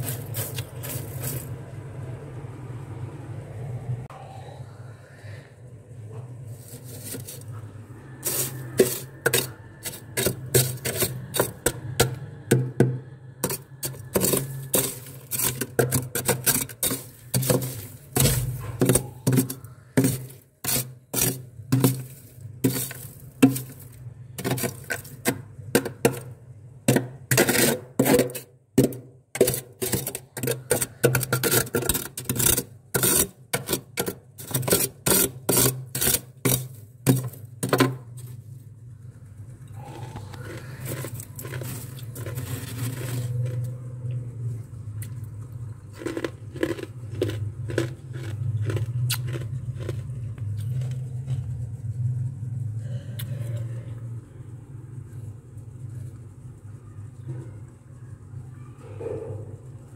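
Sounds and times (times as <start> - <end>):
spatula scraping freezer frost: 0.0 - 1.7, 6.4 - 38.5, 39.8 - 43.8
low steady hum: 36.3 - 59.9.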